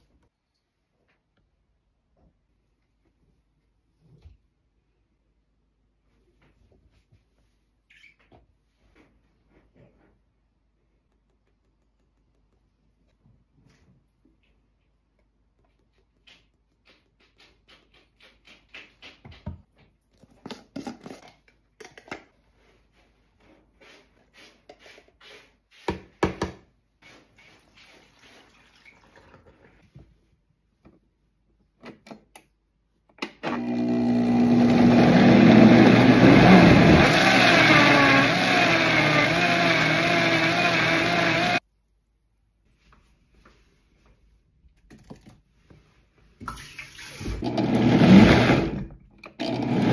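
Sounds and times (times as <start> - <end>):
blender grinding: 33.4 - 41.6, 47.4 - 49.9.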